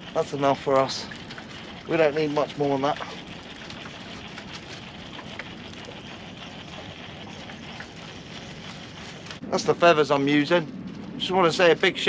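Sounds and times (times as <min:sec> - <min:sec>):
sea water washing around boat: 0:00.0 - 0:12.0
faint ticks and clicks: 0:00.1 - 0:09.4.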